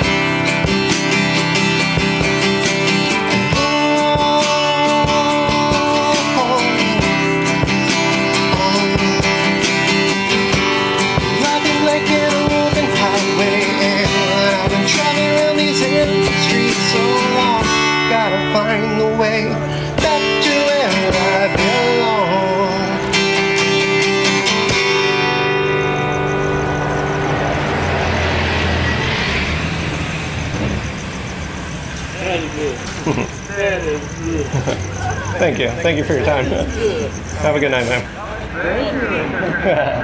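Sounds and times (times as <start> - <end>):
acoustic guitar strumming: 0.0 - 40.0
man singing: 3.1 - 23.4.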